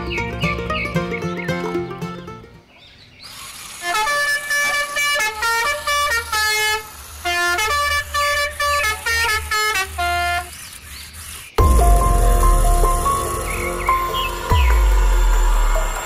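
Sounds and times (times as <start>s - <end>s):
musical car horn tune: 3.8s - 10.5s, 11.6s - 16.0s
low engine rumble: 11.6s - 16.0s.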